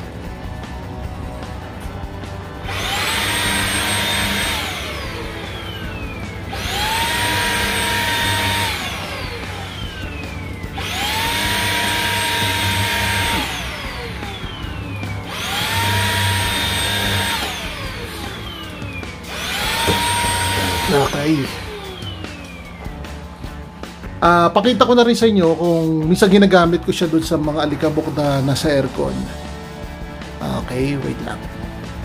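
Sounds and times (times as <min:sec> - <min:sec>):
vacuum motor whining: 0:01.2 - 0:24.3.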